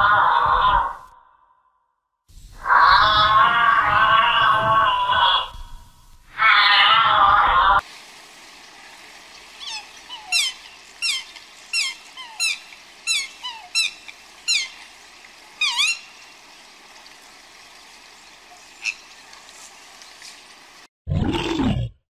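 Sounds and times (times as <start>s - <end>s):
faint water background: 0.0s - 22.0s
swan squeaky calls: 9.5s - 16.4s, 18.5s - 20.3s.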